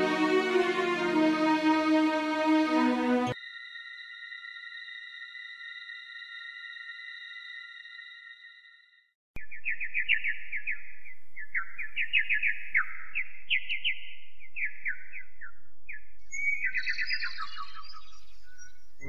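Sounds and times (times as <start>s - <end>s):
bird chirping high: 9.4s - 19.0s.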